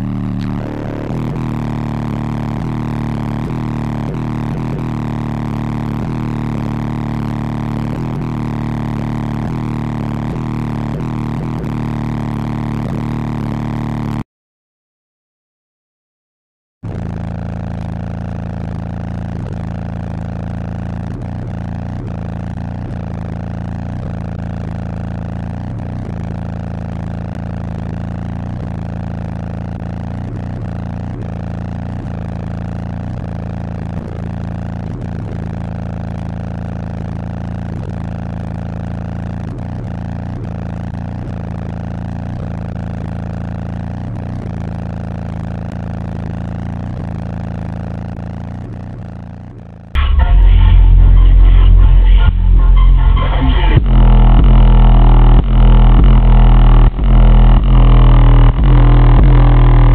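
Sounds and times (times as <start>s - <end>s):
subwoofer bass drone: 0.0s - 14.2s, 16.8s - 59.9s.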